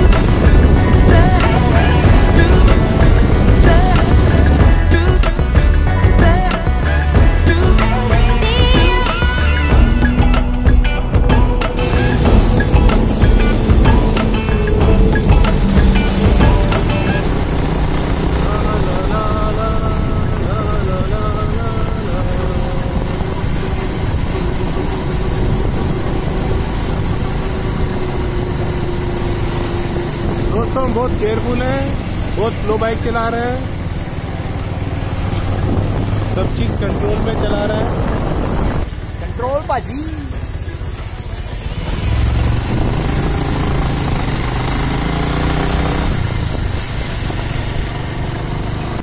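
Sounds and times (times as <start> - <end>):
motorcycle engine running: 0.0 - 49.0.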